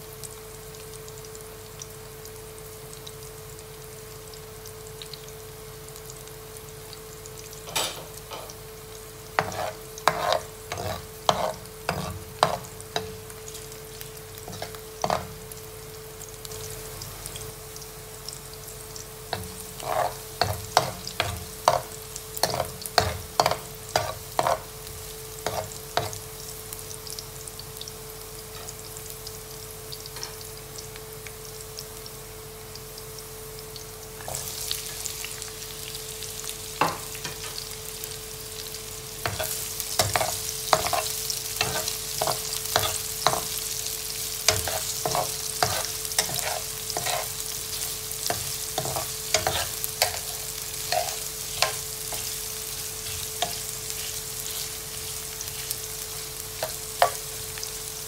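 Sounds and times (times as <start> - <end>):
garlic sizzling in oil: 0.0 - 58.0
spoon clicking and scraping pan: 9.4 - 13.1, 14.5 - 15.3, 19.3 - 24.7, 25.4 - 26.2, 39.2 - 43.6, 44.5 - 52.3.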